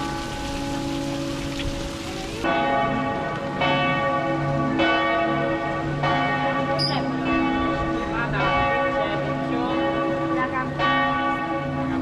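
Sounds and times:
bells ringing: 2.4s - 12.0s.

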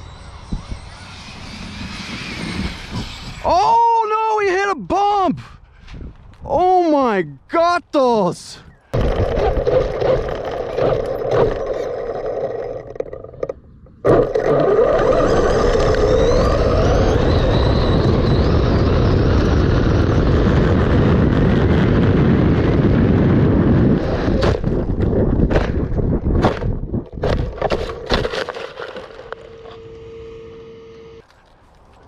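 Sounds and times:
wind buffeting microphone: 0.0s - 3.7s, 5.4s - 6.8s, 13.4s - 28.2s.

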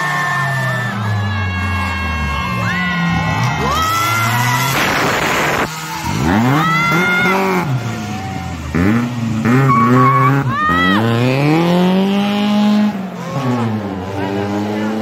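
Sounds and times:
car engine revving: 1.8s - 15.0s
tyres squealing: 9.5s - 11.0s.

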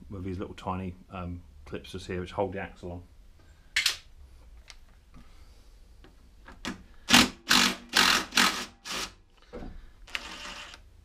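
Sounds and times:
impact driver hammering: 7.1s - 9.1s.

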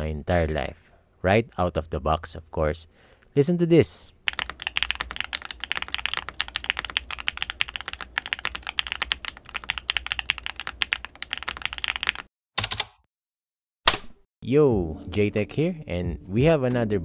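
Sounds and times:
fast mechanical keyboard typing: 4.3s - 13.0s.

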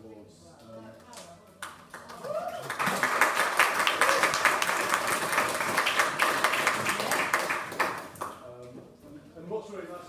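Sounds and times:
audience applauding: 1.9s - 8.4s.

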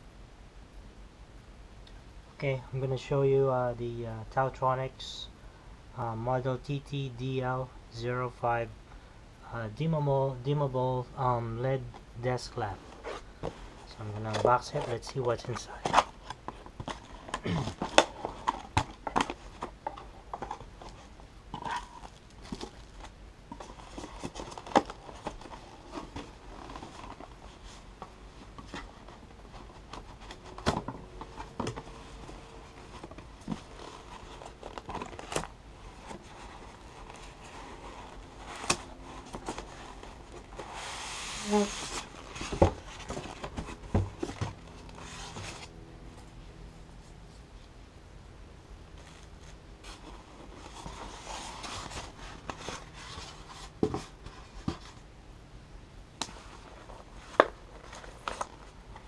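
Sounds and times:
cardboard flaps rustling: 12.6s - 45.8s, 49.0s - 55.1s, 56.2s - 59.0s.

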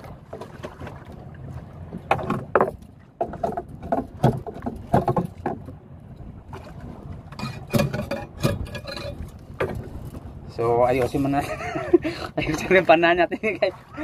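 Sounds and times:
rope knocking and rubbing on boat: 0.0s - 5.8s.

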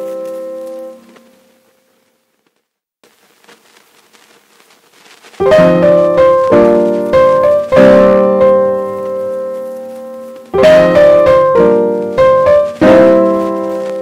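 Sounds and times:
piano chords: 0.0s - 1.7s, 5.4s - 14.0s.

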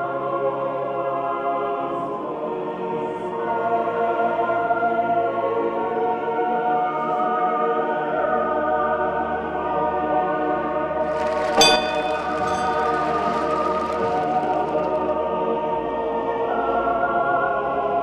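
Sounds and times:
slow choral singing: 11.0s - 18.0s.

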